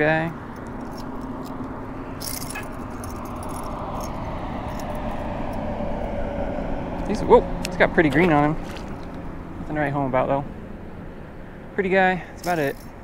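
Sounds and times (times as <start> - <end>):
metallic jingling of lure blade: 0.3 - 5.6, 12.4 - 13.0.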